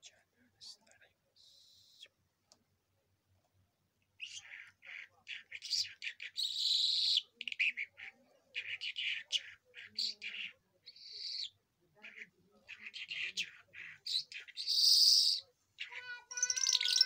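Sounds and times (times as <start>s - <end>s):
lark singing: 4.2s - 17.0s.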